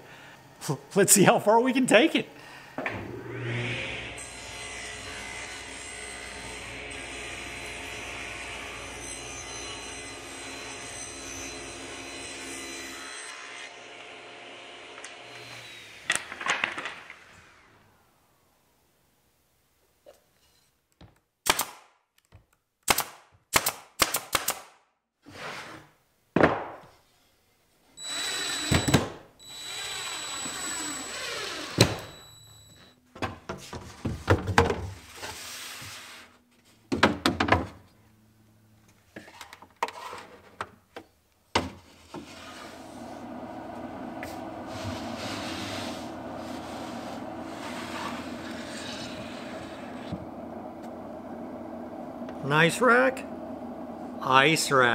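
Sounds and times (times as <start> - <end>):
power tool running: 3.0 - 16.2, 28.0 - 32.1, 42.6 - 54.9
steady hum: 42.8 - 54.9.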